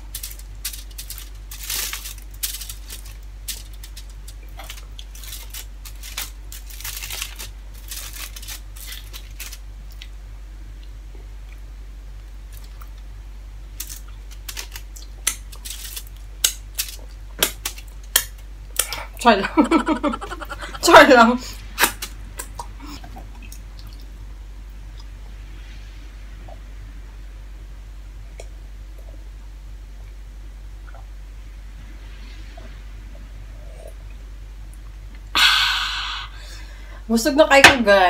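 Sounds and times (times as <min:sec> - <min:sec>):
foil crinkling: 0:00.0 - 0:10.1, 0:13.8 - 0:18.9.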